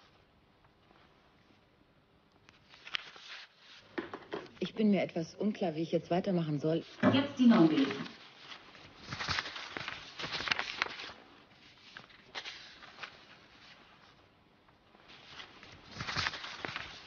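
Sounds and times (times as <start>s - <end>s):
paper rustling and crackling: 2.4s - 4.6s, 6.8s - 17.0s.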